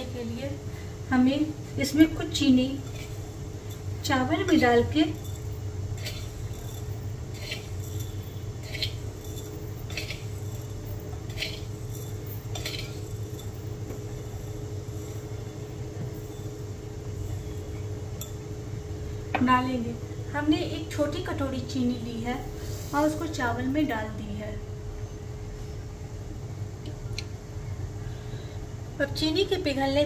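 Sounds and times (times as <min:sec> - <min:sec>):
steady low hum: 0:00.0 - 0:30.0
kitchen utensils clinking: 0:02.0 - 0:18.4.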